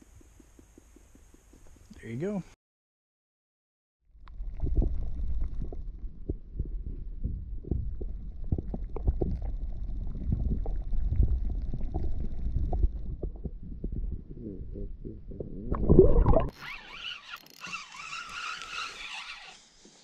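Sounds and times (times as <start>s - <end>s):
muffled underwater rumble: 4.1s - 16.5s.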